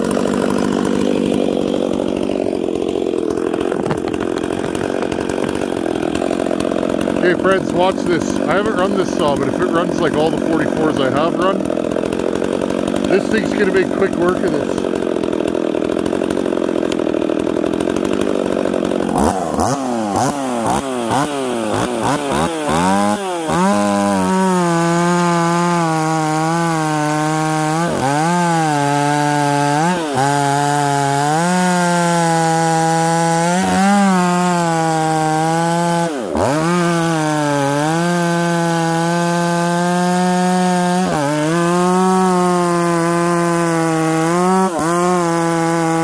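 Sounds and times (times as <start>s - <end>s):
chainsaw cutting log: 0.0s - 46.0s
chainsaw idling and revving: 0.0s - 46.0s.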